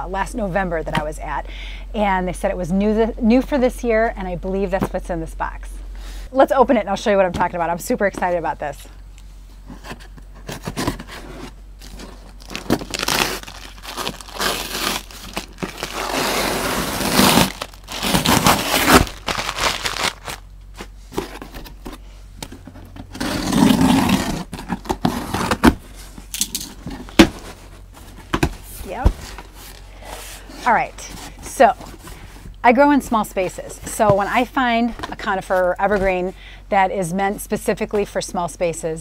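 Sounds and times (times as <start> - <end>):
cardboard flaps scraping: 9.6 - 26.2
paper packing crinkling: 10.4 - 22.0
packing tape tearing: 11.8 - 20.4, 23.1 - 27.3.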